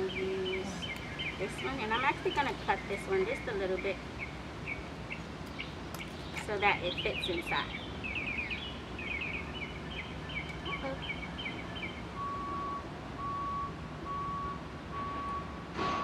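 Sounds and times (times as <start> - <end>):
low engine hum: 0.0 - 16.0
small bird chirping: 4.2 - 12.0
reversing alarm beeping: 10.6 - 15.7.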